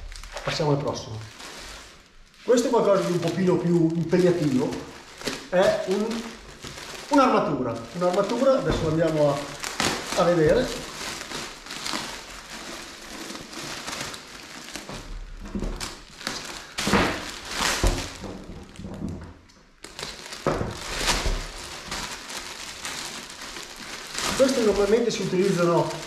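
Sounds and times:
plastic bag crinkling: 0.0 - 26.0.

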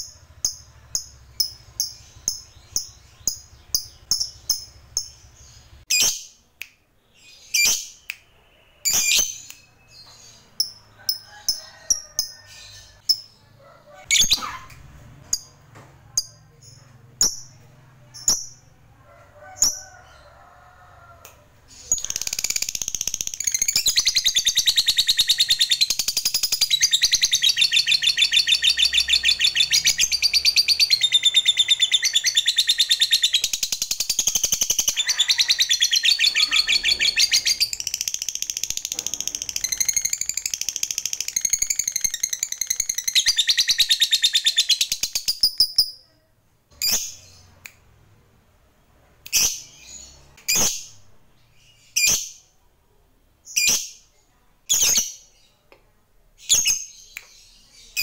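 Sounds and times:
lovebird chattering trill: 21.9 - 46.0.

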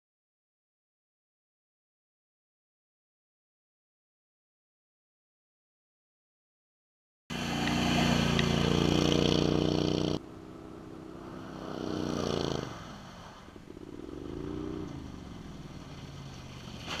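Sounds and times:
atv engine running: 7.3 - 17.0.

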